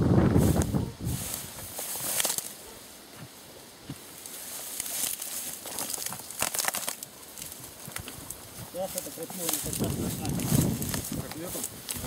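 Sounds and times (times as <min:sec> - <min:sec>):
dry brush crackling and rustling: 0:00.1 - 0:12.0
sharp snaps of twigs: 0:02.0 - 0:02.6, 0:04.2 - 0:08.4.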